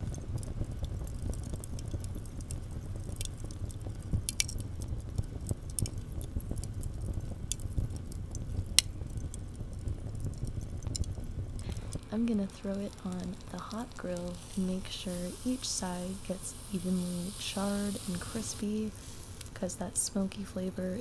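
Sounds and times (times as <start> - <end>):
charcoal pinging and crackling: 0.0 - 21.0
low rumble: 6.1 - 20.1.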